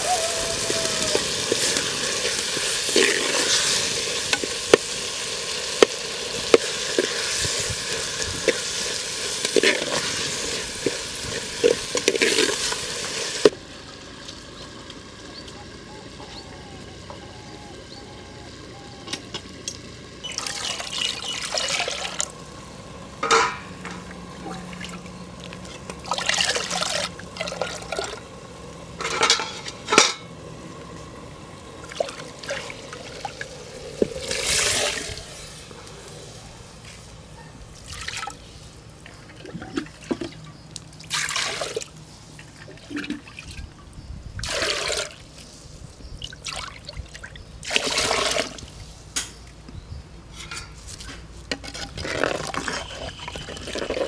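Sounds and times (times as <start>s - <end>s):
liquid sloshing in clay pots: 0.7s - 13.5s, 20.2s - 22.4s, 23.2s - 28.3s, 31.8s - 35.4s, 37.6s - 43.8s, 44.4s - 45.5s, 46.2s - 48.9s, 50.3s - 54.0s.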